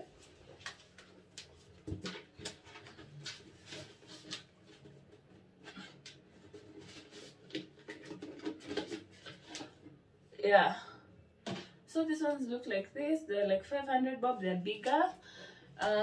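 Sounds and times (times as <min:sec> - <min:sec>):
plastic baskets scraping and clicking: 0:00.6 - 0:09.9.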